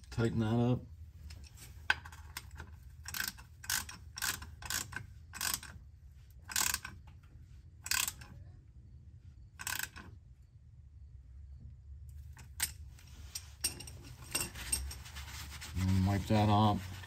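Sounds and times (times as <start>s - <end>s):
ratchet wrench clicking: 2.1s - 5.8s, 6.4s - 7.0s, 7.8s - 8.3s, 9.6s - 10.1s.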